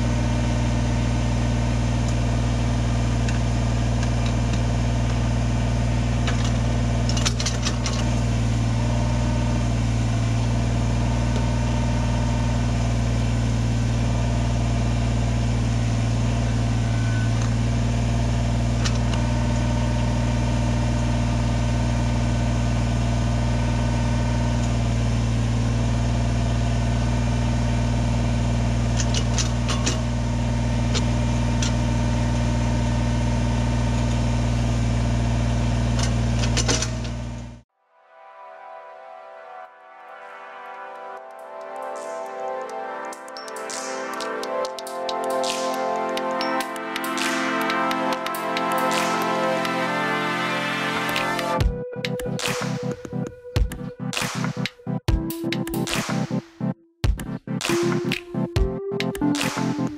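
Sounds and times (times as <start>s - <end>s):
diesel engine running: 0.0s - 37.7s, 43.1s - 52.8s.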